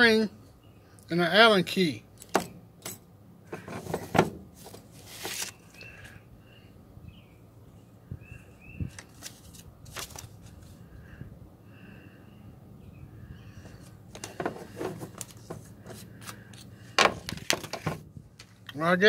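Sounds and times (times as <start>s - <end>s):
paper rustling: 3.6s - 5.8s, 8.9s - 10.8s, 14.1s - 18.6s.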